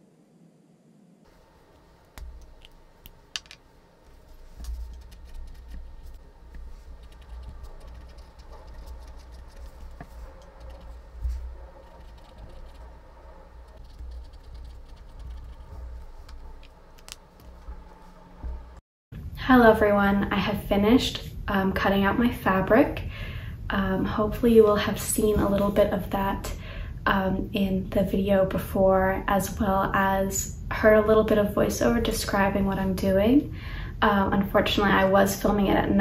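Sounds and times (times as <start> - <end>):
pen scratching on paper: 4.5 - 12.9, 13.7 - 18.1.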